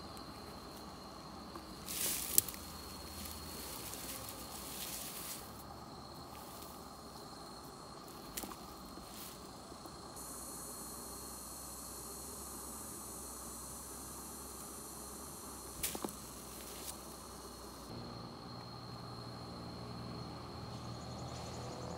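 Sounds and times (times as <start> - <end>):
steady high hiss: 0.0 - 18.0
bush rustle: 0.3 - 7.3, 8.0 - 9.6, 15.7 - 17.9.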